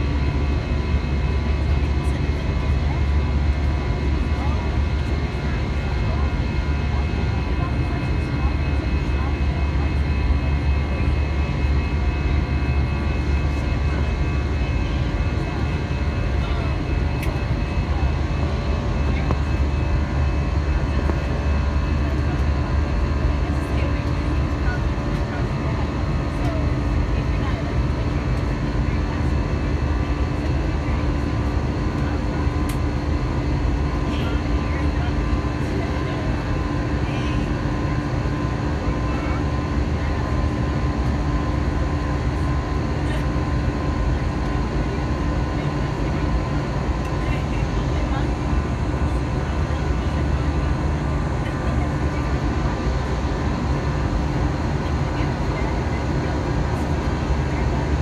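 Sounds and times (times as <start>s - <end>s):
jet engines droning: 0.0s - 58.0s
steady hums: 0.0s - 58.0s.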